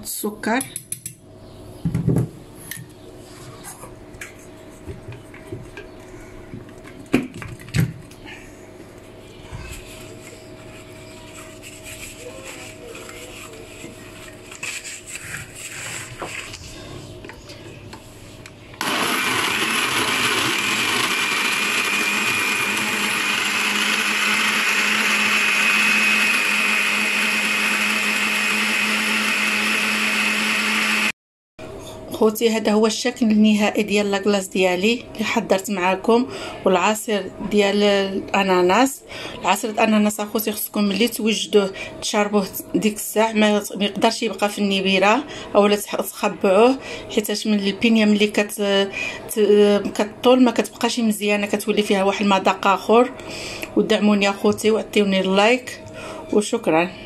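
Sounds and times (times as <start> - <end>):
electric blender running: 18.8 - 31.2.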